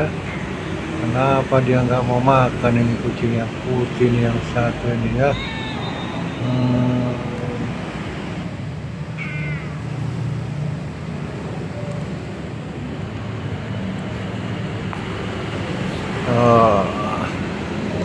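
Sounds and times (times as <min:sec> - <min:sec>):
cat meowing: 0:05.2 - 0:07.1, 0:09.2 - 0:09.9.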